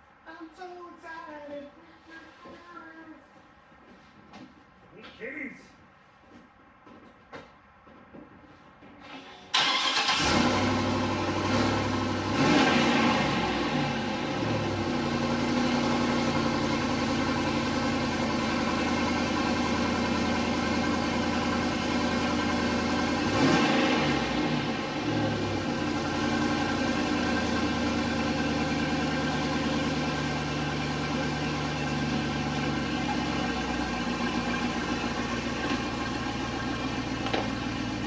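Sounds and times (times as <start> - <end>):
truck engine starting: 9.0 - 38.0
engine revving: 9.6 - 17.5, 20.5 - 38.0
engine idling: 9.6 - 38.0.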